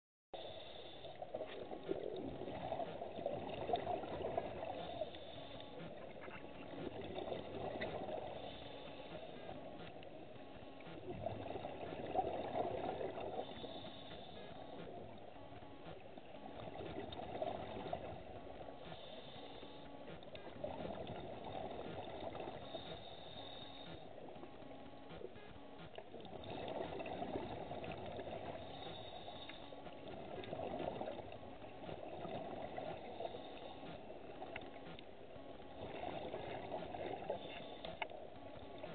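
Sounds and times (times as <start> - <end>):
regulator inhalation hiss: 0.4 - 1.2, 13.4 - 14.7, 18.9 - 19.8, 22.6 - 24.1, 28.6 - 29.8
exhaled bubbles underwater: 1.2 - 8.6, 10.8 - 15.2, 16.3 - 18.4, 26.2 - 29.2, 30.1 - 33.5, 35.8 - 37.8.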